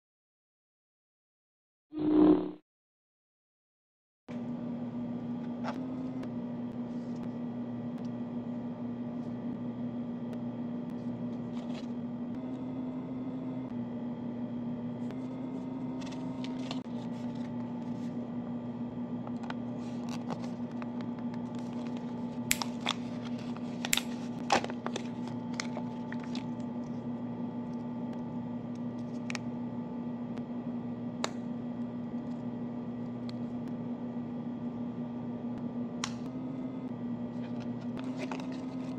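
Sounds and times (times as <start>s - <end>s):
steady low hum: 4.3s - 38.9s.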